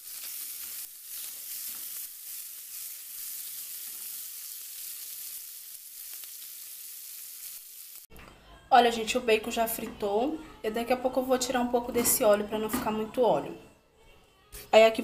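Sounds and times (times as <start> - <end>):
bacon sizzling in a frying pan: 0.0 - 8.1.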